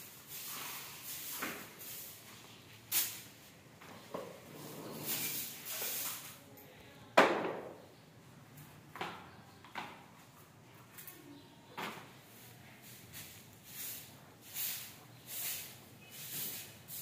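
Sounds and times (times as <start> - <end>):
hand broom sweeping stone floor: 0.0 - 6.6, 12.1 - 17.0.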